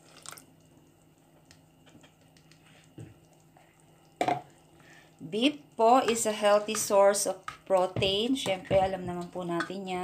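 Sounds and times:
spatula stirring in pot: 5.3s - 10.0s.

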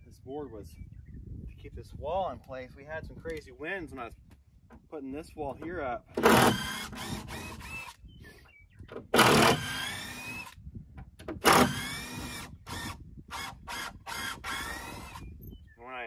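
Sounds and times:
cordless drill motor whine: 6.2s - 8.2s, 9.2s - 10.6s, 11.4s - 15.6s.

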